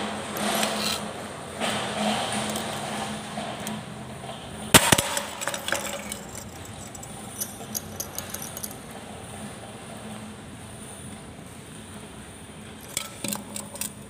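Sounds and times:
metal cup clattering on hard surface: 4.8s - 8.8s.

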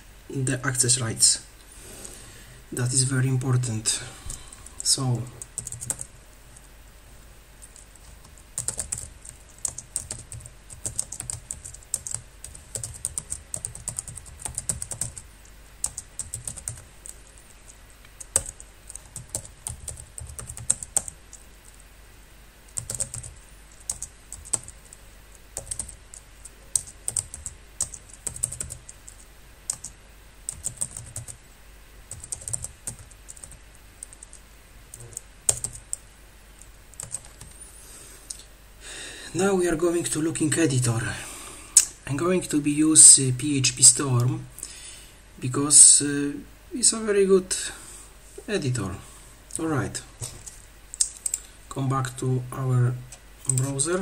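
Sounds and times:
computer keyboard typing: 4.6s - 6.7s, 7.6s - 21.4s, 22.7s - 25.0s, 25.6s - 31.4s, 32.1s - 36.0s, 36.6s - 37.6s, 50.9s - 51.4s.

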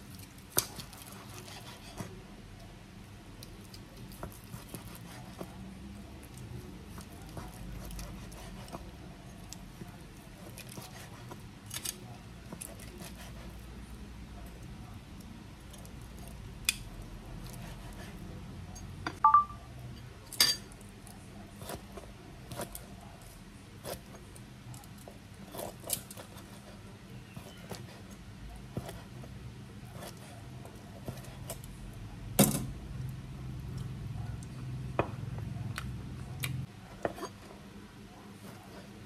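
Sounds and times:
metallic ping: 19.2s - 19.7s.

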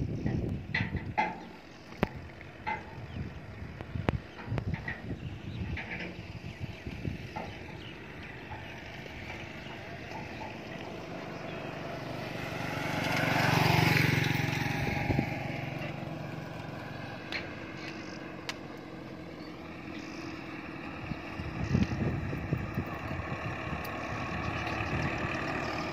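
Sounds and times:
low engine hum: 0.0s - 25.9s
vehicle passing by: 5.7s - 25.9s.

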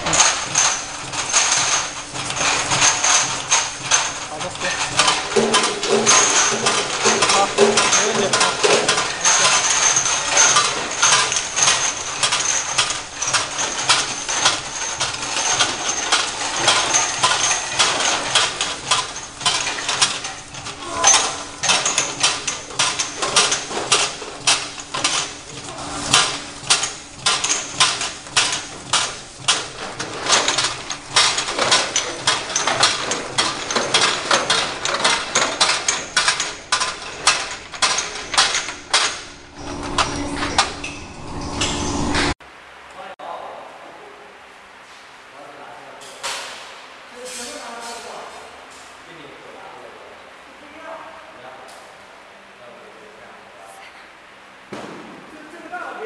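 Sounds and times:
labeling machine clattering: 0.0s - 42.4s.

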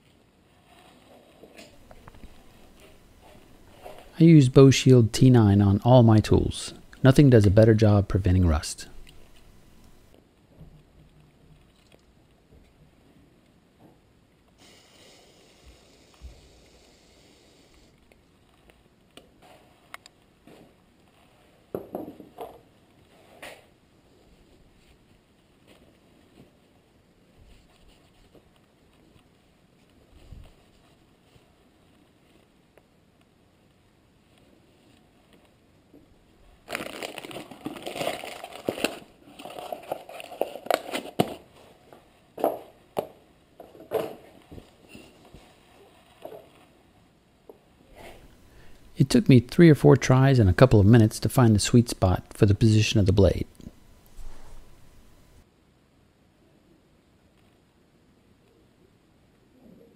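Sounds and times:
cloth and plastic rustling: 0.0s - 5.0s, 36.2s - 43.0s.

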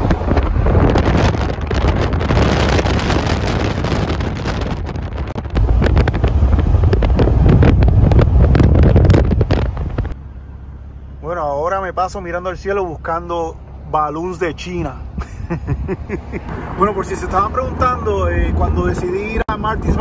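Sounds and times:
wind buffeting microphone: 0.0s - 10.2s
low road rumble: 0.0s - 20.0s.

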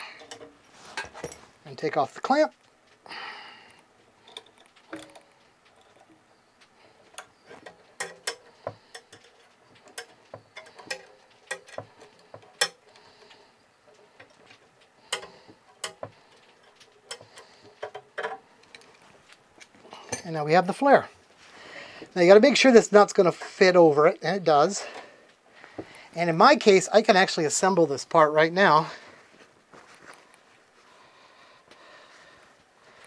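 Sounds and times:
small metal clicks and taps: 0.0s - 1.4s, 3.7s - 20.3s.

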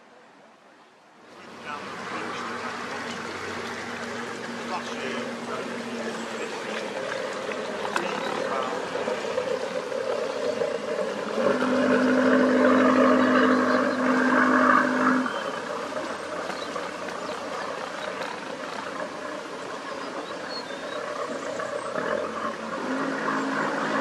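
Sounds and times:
boat horn blast: 11.3s - 15.7s, 22.8s - 24.0s.

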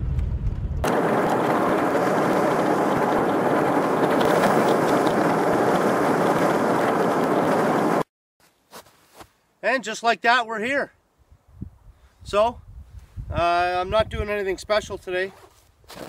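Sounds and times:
car engine and road noise: 0.8s - 8.1s.

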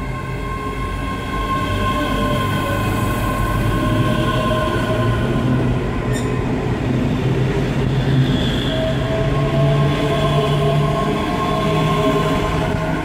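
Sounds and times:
electric train whining: 0.0s - 13.0s.

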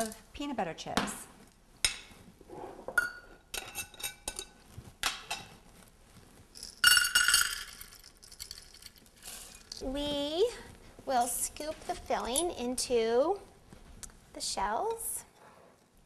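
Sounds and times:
chips rattling into metal cup: 6.6s - 9.8s.

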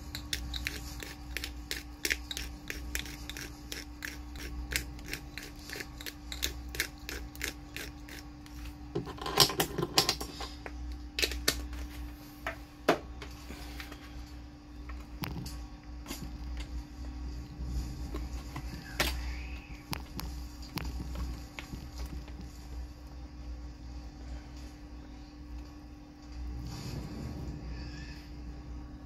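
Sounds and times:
pepper mill grinding clicks: 0.1s - 8.2s.

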